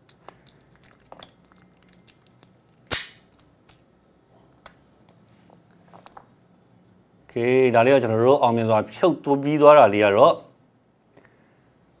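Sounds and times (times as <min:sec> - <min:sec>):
battery snapping free of adhesive: 0:02.9 - 0:03.4.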